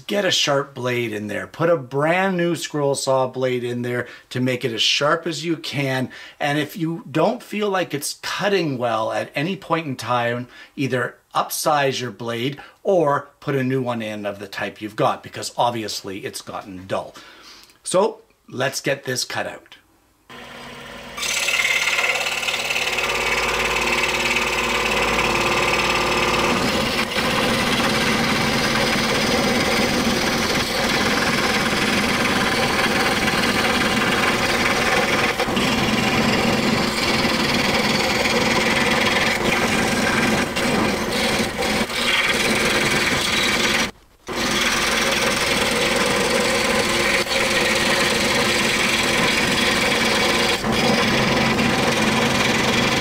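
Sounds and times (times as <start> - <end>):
scroll saw cutting wood: 20.3 - 53.0.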